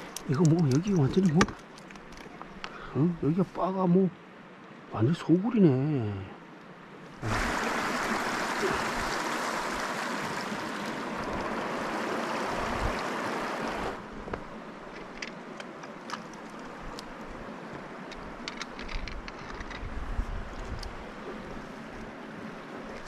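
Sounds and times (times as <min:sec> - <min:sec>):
stream water rushing: 0:07.0 - 0:18.4.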